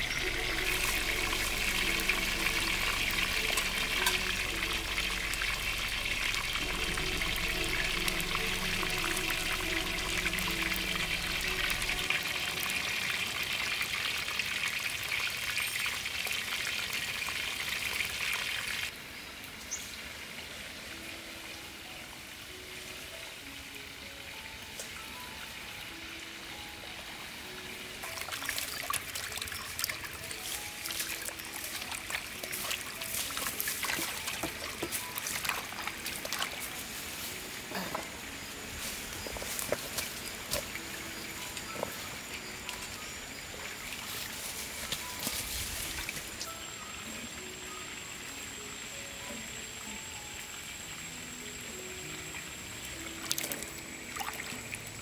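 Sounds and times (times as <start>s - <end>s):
soft background music: 0.0s - 15.1s, 18.9s - 55.0s
water splashing in metal basin: 0.0s - 18.3s, 28.0s - 36.7s
deep-frying oil sizzling: 0.0s - 18.9s.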